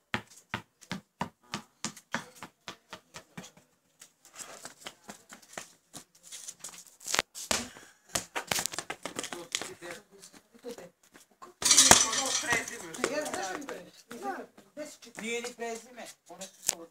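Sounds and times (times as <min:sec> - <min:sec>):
sharp taps on concrete: 0:11.6 - 0:14.3.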